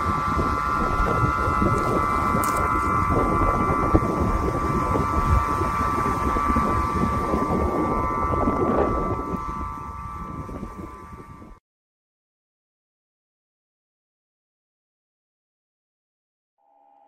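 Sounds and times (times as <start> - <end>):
wind harp held high tones: 0.0 - 11.6
wind rumble on microphone: 0.0 - 11.6.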